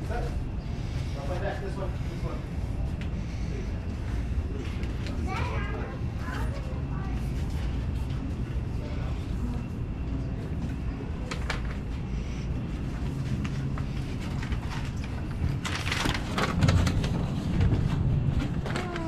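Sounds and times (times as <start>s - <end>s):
wind rumbling on microphone: 11.8s - 19.0s.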